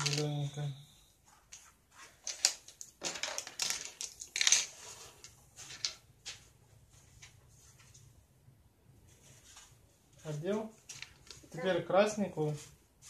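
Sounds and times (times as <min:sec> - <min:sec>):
plastic track pieces clattering: 0:00.0 - 0:00.4, 0:02.2 - 0:04.9.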